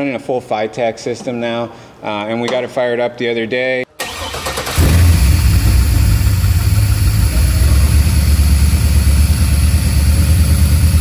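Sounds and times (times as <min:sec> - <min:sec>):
car engine idling: 0:04.1 - 0:11.0.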